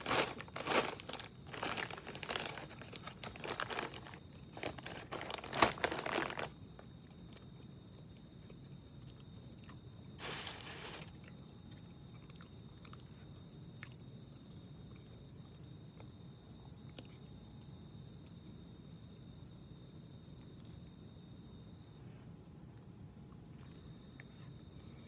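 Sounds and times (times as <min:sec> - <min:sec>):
chip bag crinkling: 0:00.0 - 0:06.6, 0:10.2 - 0:11.3
chips crunching: 0:00.0 - 0:06.6.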